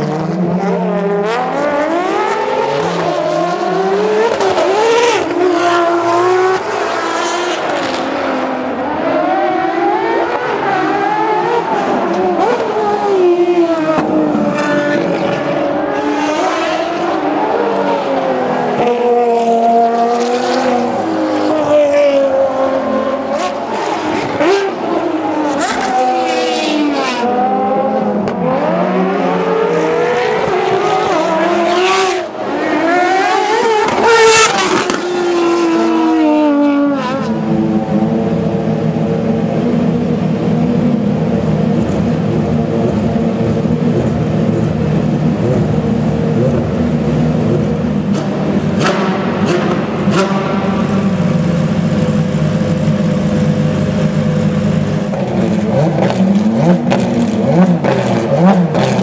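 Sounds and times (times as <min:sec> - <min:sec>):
car engine revving: 0:00.0 - 0:59.0
car engine idling: 0:38.2 - 0:55.6.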